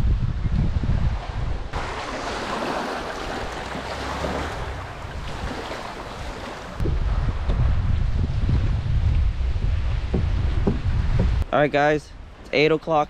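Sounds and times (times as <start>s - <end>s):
wind buffeting microphone: 0.0s - 11.5s
small waves washing over rocks: 1.8s - 6.8s.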